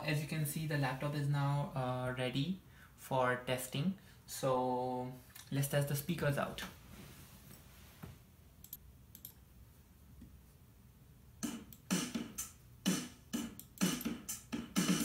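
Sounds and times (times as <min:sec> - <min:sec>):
music with a steady beat: 0:11.4 - 0:15.0.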